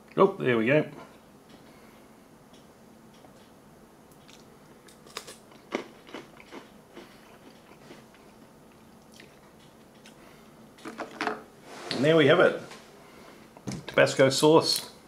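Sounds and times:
cracker crunching: 4.1s - 10.9s.

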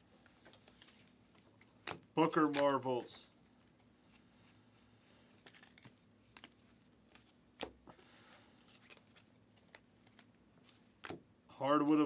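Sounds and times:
trading cards clicking and rustling: 0.3s - 2.9s, 5.3s - 8.0s, 8.6s - 11.2s.

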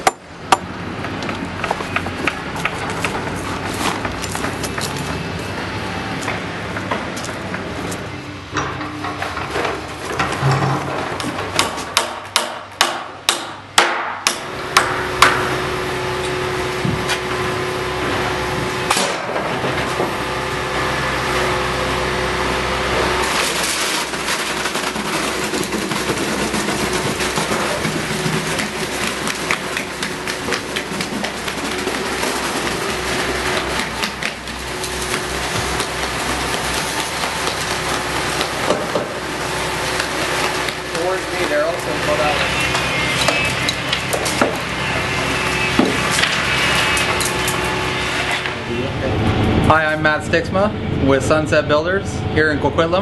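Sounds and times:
steady hum: 0.0s - 53.0s
hammer striking wood: 11.5s - 15.4s.

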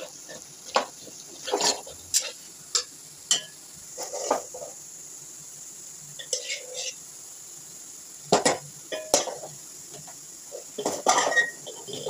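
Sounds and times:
metal spatula scraping a pan: 0.0s - 4.8s, 6.2s - 7.0s, 8.4s - 9.5s, 10.5s - 12.0s
faint sizzle of ghee: 0.0s - 12.0s.

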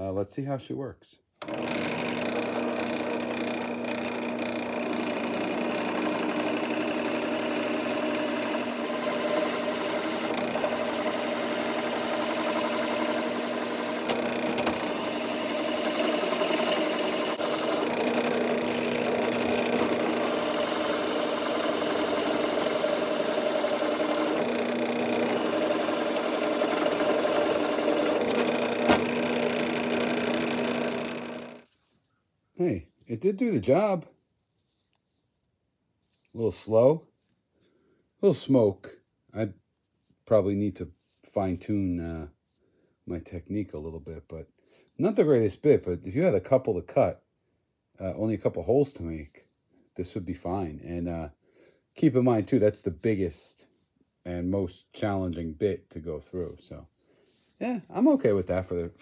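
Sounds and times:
drill bit boring into wood: 1.4s - 31.7s
drill press motor humming: 1.4s - 31.7s.

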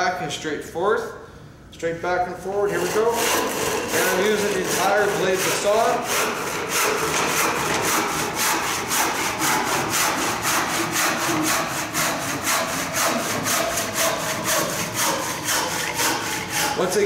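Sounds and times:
handsaw cutting wood: 2.6s - 17.0s.

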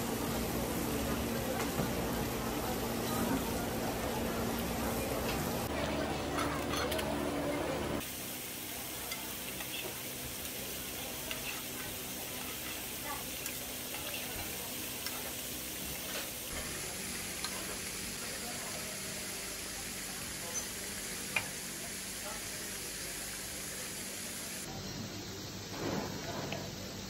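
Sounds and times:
sauce bubbling and sizzling in a pan: 8.0s - 24.7s
tongs and spoon clicking on a pan: 11.2s - 11.6s, 13.4s - 15.3s.

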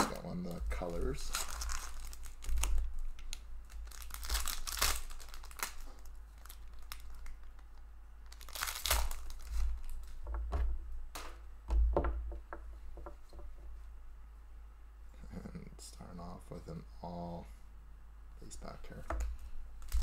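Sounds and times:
foil wrapper crinkling and tearing: 0.0s - 10.2s, 19.8s - 20.0s.

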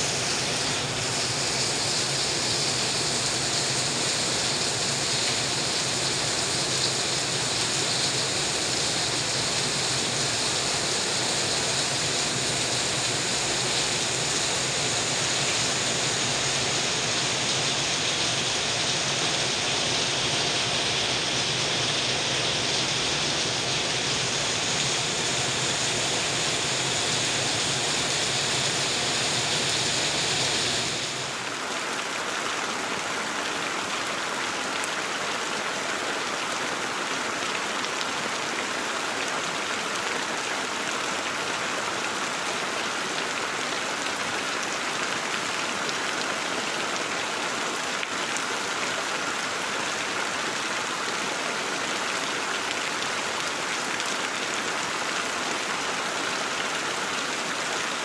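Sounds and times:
heavy rain: 0.0s - 58.0s
rain on leafy plants: 0.0s - 58.0s.

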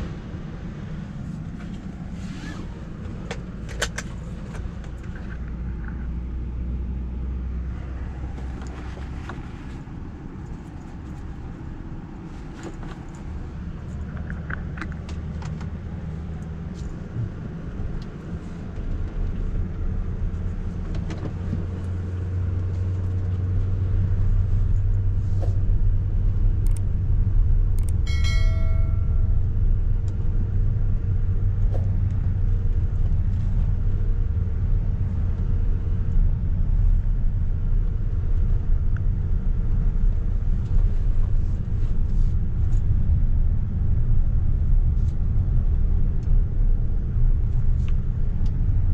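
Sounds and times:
road and tyre rumble in car: 0.0s - 48.9s
brief chime: 28.1s - 29.5s.

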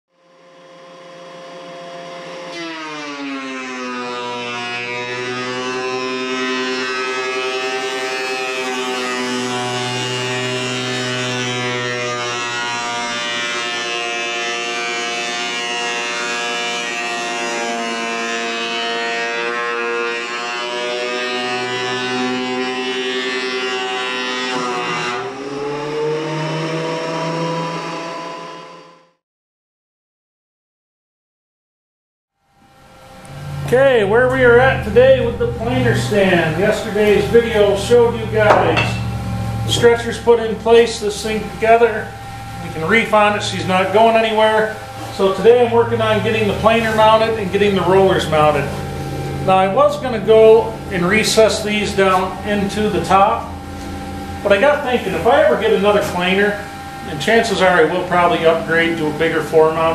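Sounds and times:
thickness planer planing board: 0.3s - 29.1s, 33.2s - 59.9s.

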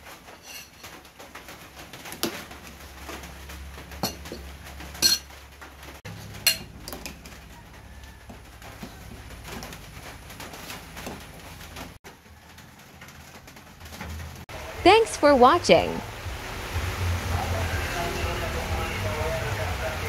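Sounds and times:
metal ladle clinking on pot: 5.0s - 5.3s, 6.4s - 7.2s.

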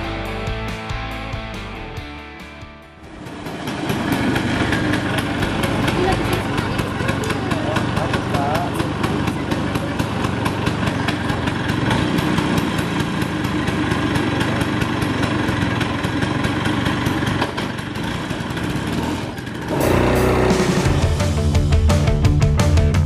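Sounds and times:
rock music: 0.0s - 3.0s, 19.7s - 23.0s
scooter engine idling: 2.9s - 23.0s.

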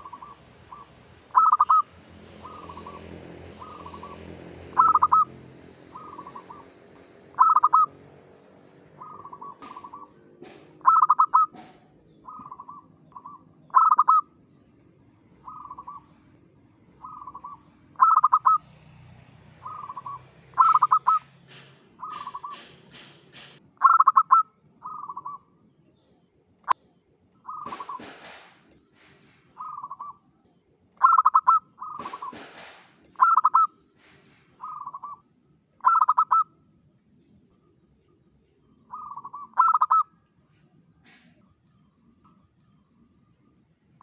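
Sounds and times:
dove cooing: 0.0s - 8.0s, 8.8s - 14.3s, 15.4s - 16.3s, 17.0s - 18.7s, 19.6s - 22.7s, 23.8s - 25.5s, 27.4s - 28.4s, 29.5s - 30.2s, 31.0s - 32.6s, 33.2s - 33.7s, 34.6s - 35.2s, 35.8s - 36.6s, 38.9s - 40.1s
sharp click: 21.4s - 23.6s.

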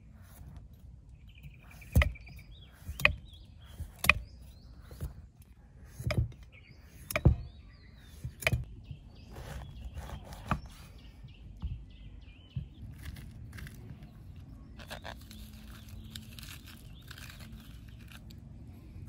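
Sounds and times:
small birds chirping: 0.0s - 19.0s
chopping strikes: 1.7s - 5.1s.

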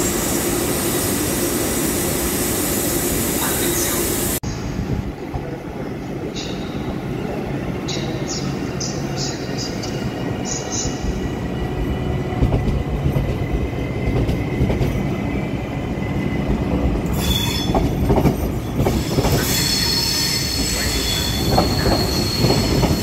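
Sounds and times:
train rolling past: 0.0s - 23.0s
high-pitched wheel squeal: 19.0s - 23.0s.

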